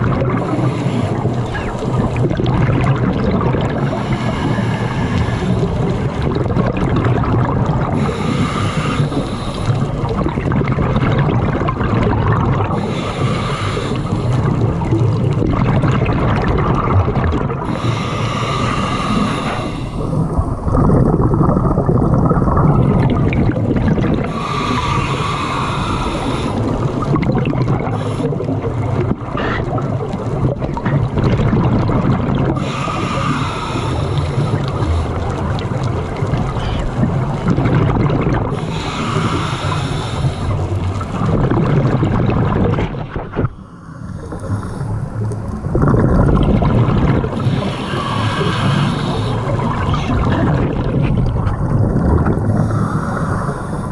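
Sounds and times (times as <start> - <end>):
exhaled bubbles rumbling: 0.0 - 53.9
regulator hissing inhale: 0.4 - 2.1, 3.8 - 5.8, 8.0 - 9.9, 12.7 - 14.4, 17.6 - 20.3, 24.3 - 27.0, 27.9 - 28.5, 32.6 - 35.3, 38.5 - 41.0, 43.5 - 45.4, 47.4 - 49.6, 52.5 - 53.9.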